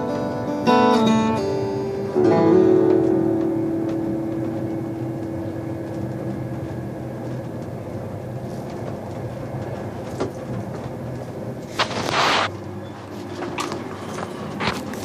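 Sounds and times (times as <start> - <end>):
acoustic guitar chord: 0.0 - 7.0
train carriage rumble: 0.0 - 15.0.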